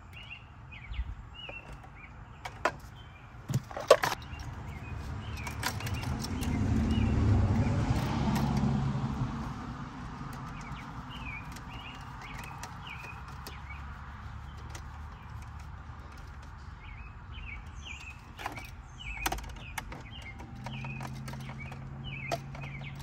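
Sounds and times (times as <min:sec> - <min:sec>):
birds chirping faintly: 0:00.0 - 0:23.0
vehicle passing by: 0:04.2 - 0:18.1.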